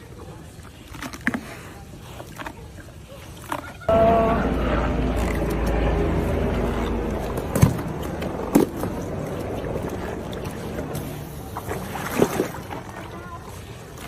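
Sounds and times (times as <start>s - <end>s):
water lapping: 0.0s - 14.0s.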